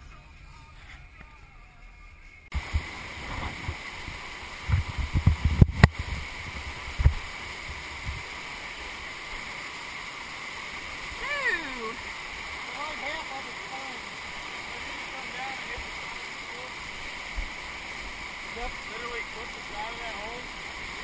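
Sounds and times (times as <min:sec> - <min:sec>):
low thumps and knocks: 0:02.6 - 0:08.3
whitewater river rushing: 0:02.6 - 0:21.0.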